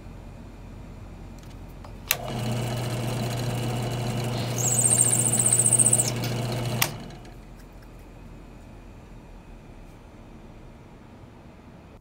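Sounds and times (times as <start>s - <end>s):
drill press motor humming: 2.1s - 7.4s
drill bit squealing on brass: 4.3s - 6.3s.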